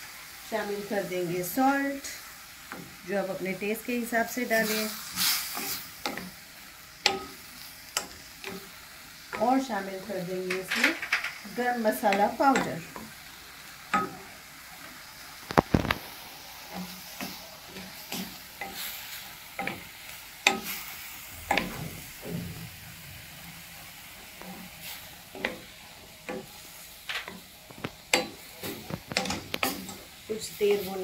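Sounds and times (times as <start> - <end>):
meat sizzling in oil: 0.0 - 31.0
utensil scraping and clicking on pan: 4.6 - 9.7, 10.3 - 13.2, 16.7 - 22.6, 24.2 - 30.3.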